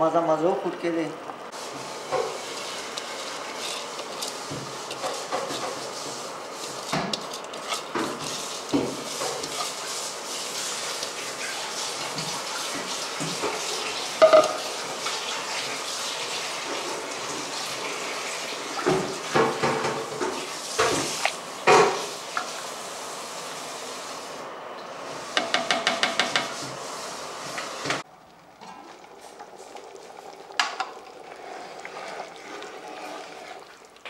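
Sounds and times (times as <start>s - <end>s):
broth bubbling in a pot: 1.5s - 24.2s, 24.8s - 34.0s
spoon knocking against a pot: 14.2s - 14.6s, 25.4s - 26.5s.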